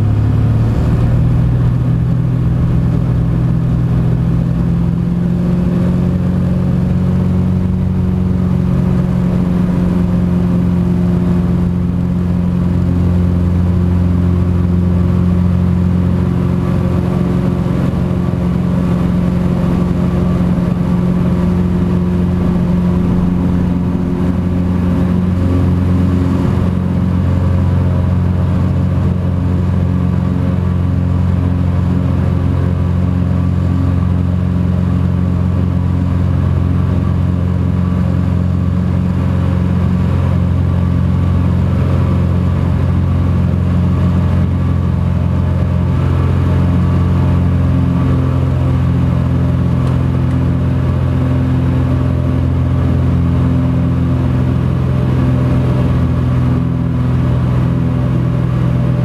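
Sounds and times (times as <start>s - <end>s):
turboprop engine and propeller: 0.0s - 59.0s.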